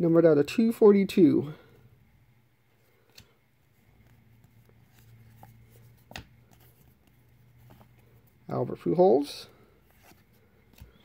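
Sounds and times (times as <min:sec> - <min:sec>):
cards sliding and rustling: 0:02.8 - 0:08.4, 0:09.7 - 0:11.0.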